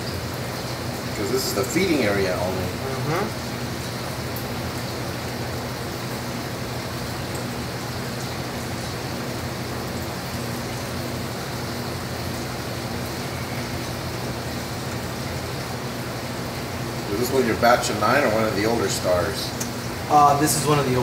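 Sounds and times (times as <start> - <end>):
low steady hum: 0.0 - 21.0
seawater rushing in tank: 0.0 - 21.0.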